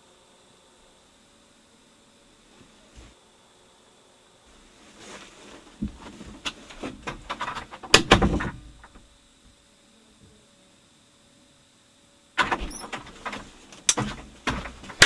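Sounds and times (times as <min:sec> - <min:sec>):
rustling: 0:04.4 - 0:09.1
clattering knocks and clicks: 0:05.8 - 0:09.1, 0:12.4 - 0:15.0.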